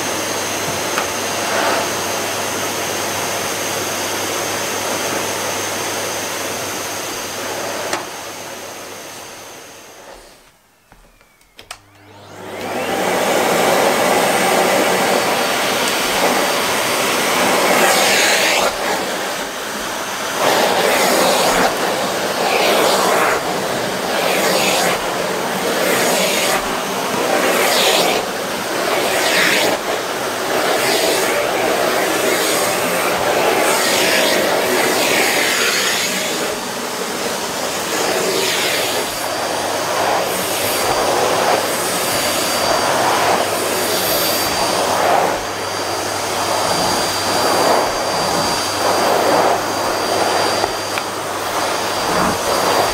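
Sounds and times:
vacuum cleaner on carpet: 0.0 - 52.9
vacuum cleaner running: 0.0 - 52.9.

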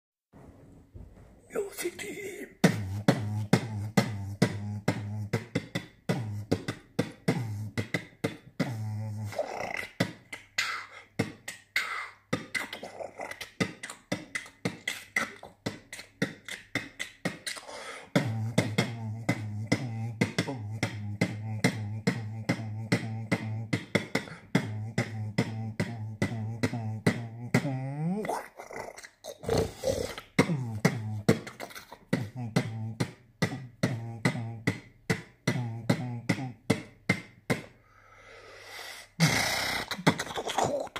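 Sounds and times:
pitched vocal sounds: 1.4 - 37.7, 38.7 - 40.9
beatboxing beat: 1.5 - 37.8, 38.7 - 40.9.

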